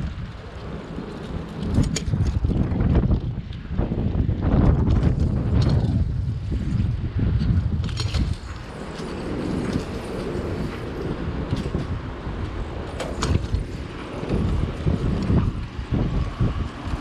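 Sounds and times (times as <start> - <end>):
bicycle tyres rumbling on concrete: 0.0 - 17.0
bike rattling: 0.0 - 17.0
wind noise on microphone: 0.0 - 17.0.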